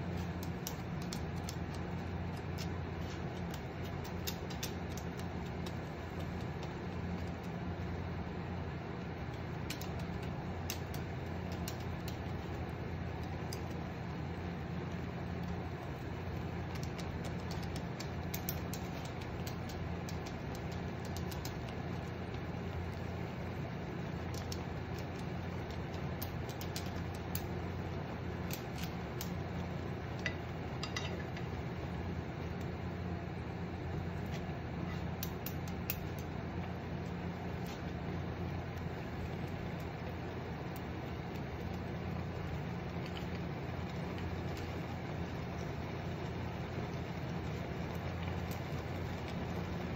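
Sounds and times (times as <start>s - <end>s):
chopsticks clicking against a pan: 0.2s - 7.7s, 9.0s - 13.9s, 15.5s - 23.0s, 23.8s - 31.6s, 34.3s - 36.4s.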